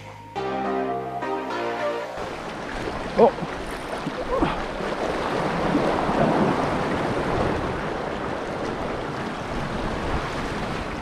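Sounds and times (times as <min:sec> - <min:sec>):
waves lapping over rocks: 0:02.2 - 0:11.0
wind buffeting microphone: 0:02.3 - 0:11.0.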